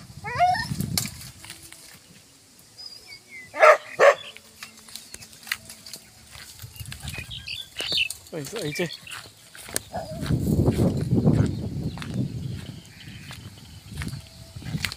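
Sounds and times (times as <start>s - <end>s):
twigs and leaves crackling: 0.6s - 14.9s
dog barking: 3.6s - 4.3s.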